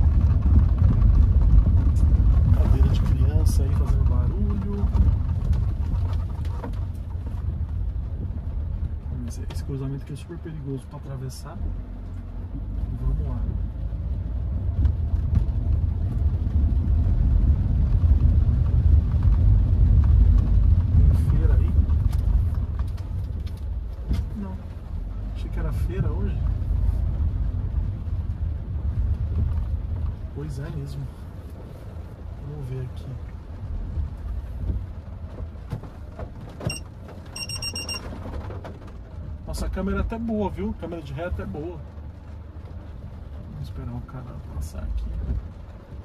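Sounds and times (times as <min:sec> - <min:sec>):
car engine rumble: 0:00.0 - 0:46.0
tyres on wet road: 0:00.0 - 0:46.0
reversing warning beeps: 0:36.7 - 0:38.0.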